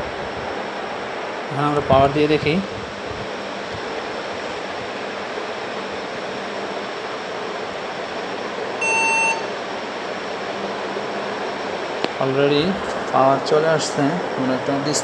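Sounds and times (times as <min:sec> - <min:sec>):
fan-like hiss: 0:00.0 - 0:15.0
computer beep: 0:08.8 - 0:09.5.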